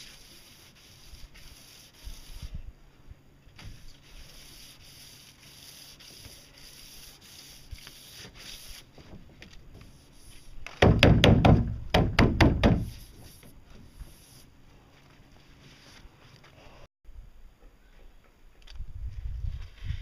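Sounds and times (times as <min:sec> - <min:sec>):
hand sanding boat hull: 0:00.0 - 0:02.6, 0:03.6 - 0:14.5.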